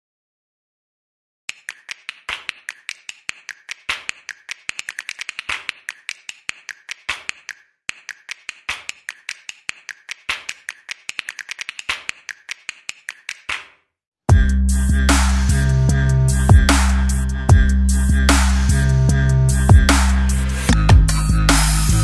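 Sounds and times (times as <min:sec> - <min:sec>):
keystroke clicks typing: 0:01.5 - 0:13.7.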